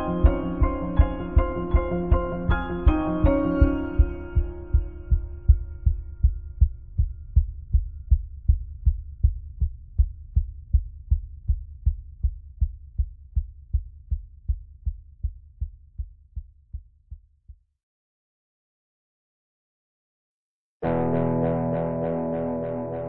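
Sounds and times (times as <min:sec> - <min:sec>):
low pulsing music beat: 0:00.0 - 0:12.0.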